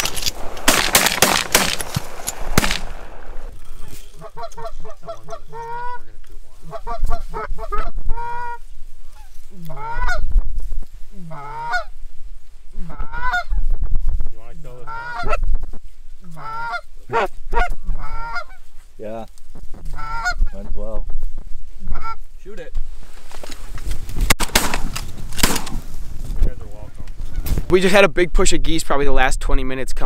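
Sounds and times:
low wind rumble: 0.0 - 16.2
geese honking: 4.2 - 10.3, 11.3 - 11.9, 12.8 - 13.6, 14.8 - 18.7, 19.9 - 20.6, 21.9 - 22.2.

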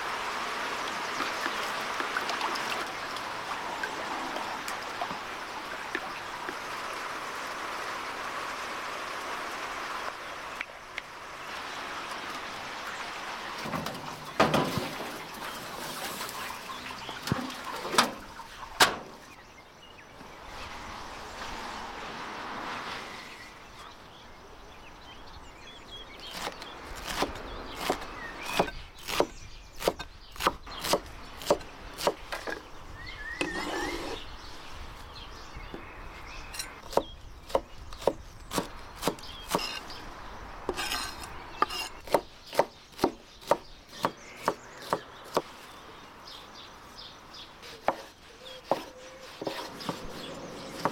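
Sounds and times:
knife chopping on wooden board: 47.8 - 50.2.

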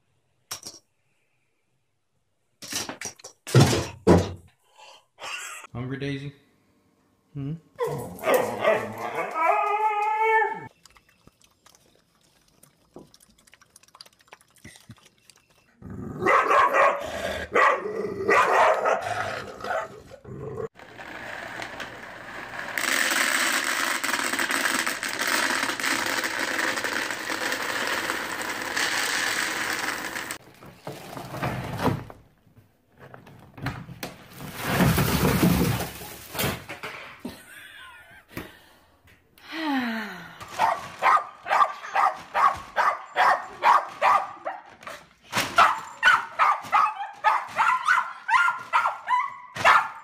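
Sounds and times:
dog howling: 7.8 - 10.7
dry pet food pouring into bin: 22.8 - 30.4.

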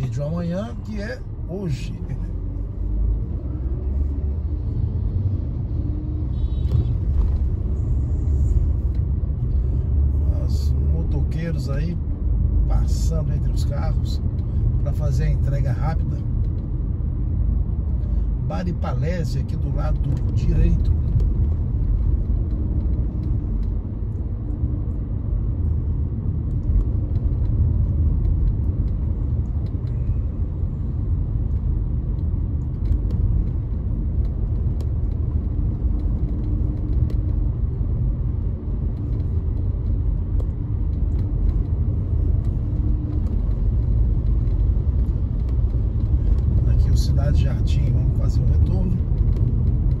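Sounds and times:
car engine and road noise: 0.0 - 50.0.

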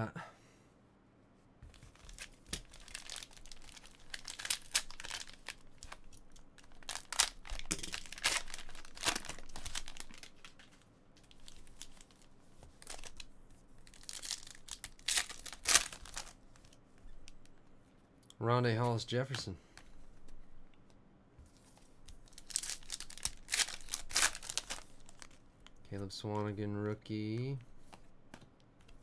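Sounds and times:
plastic wrappers tearing and crinkling: 1.8 - 16.8, 22.2 - 25.4.

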